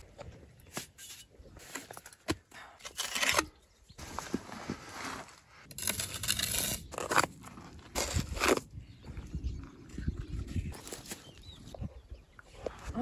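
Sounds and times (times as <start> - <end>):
trowel scraping mortar on brick: 5.6 - 8.7.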